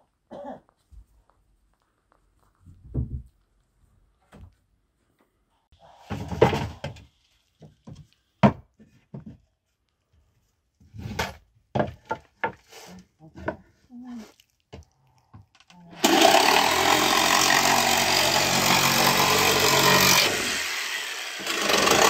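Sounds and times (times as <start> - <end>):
rustling and clattering: 6.0 - 13.8
wooden boards knocking: 11.7 - 12.7.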